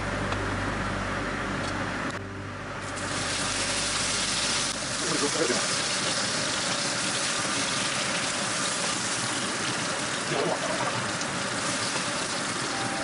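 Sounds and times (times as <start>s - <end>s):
steak sizzling in pan: 3.0s - 10.3s, 10.9s - 12.8s.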